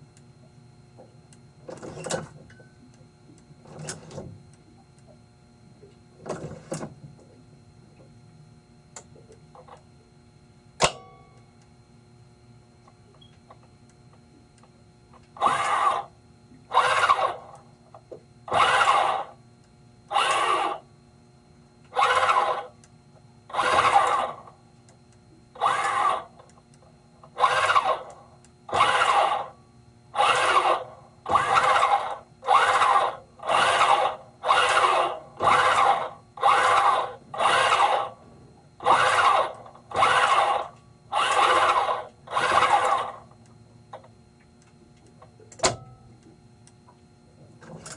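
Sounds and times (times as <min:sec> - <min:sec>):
actuator motor runs: 0:00.0 - 0:47.9.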